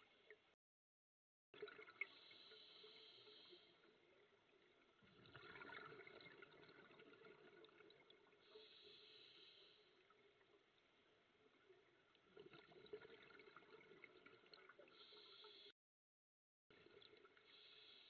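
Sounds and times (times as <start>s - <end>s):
exhaled bubbles gurgling: 1.6s - 2.9s, 3.5s - 8.5s, 11.8s - 15.2s
regulator inhale hiss: 2.2s - 3.8s, 8.5s - 9.9s, 14.9s - 15.7s, 17.5s - 18.0s.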